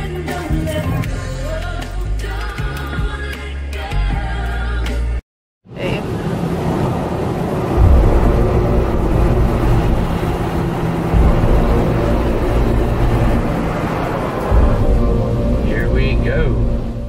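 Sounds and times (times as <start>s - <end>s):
car wash machinery and spray: 5.7s - 17.0s
low rumble: 6.0s - 17.0s.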